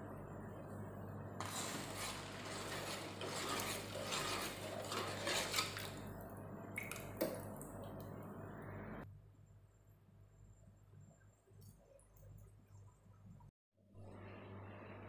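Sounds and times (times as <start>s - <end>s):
metal spoon scraping pot: 1.4s - 6.1s.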